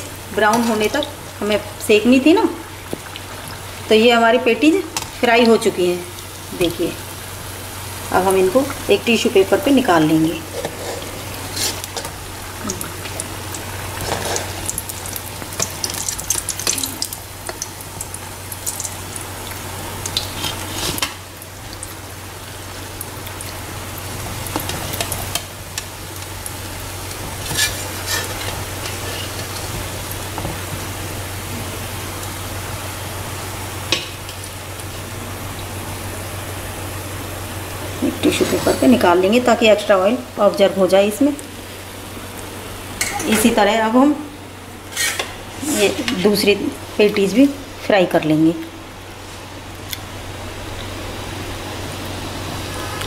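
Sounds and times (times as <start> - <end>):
food sizzling in hot oil: 0.0 - 47.8, 48.7 - 53.0
spoon scraping metal pan: 27.4 - 29.6, 44.9 - 46.3.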